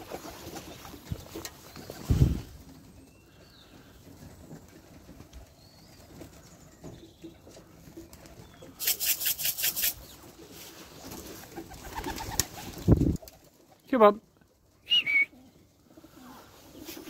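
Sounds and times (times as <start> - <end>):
pigeon wings flapping: 0.0 - 2.8, 8.0 - 13.8.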